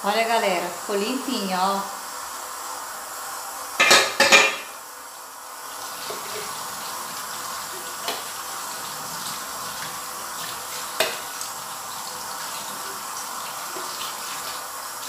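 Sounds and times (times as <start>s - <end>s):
kitchen tap running into sink: 1.8s - 15.0s
aluminium cookware clattering: 3.8s - 4.7s
lid knocking against sink: 3.8s - 4.7s.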